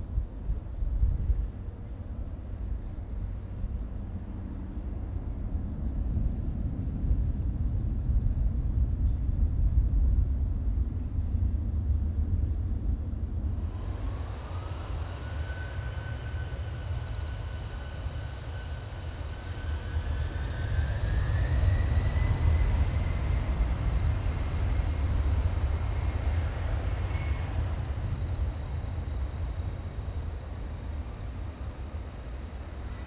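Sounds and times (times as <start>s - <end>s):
jet engines running up: 13.5s - 33.0s.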